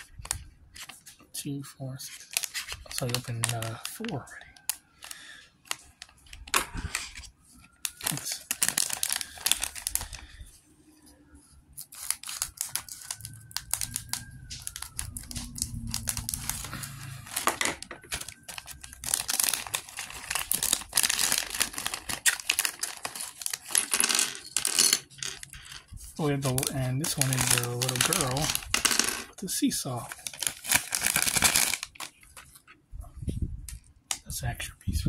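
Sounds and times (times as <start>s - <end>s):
plastic bag crinkling and tearing: 2.1s - 10.4s, 11.8s - 29.1s, 29.8s - 32.6s
plastic pieces clicking: 17.3s - 25.9s, 26.6s - 29.3s, 30.2s - 32.5s.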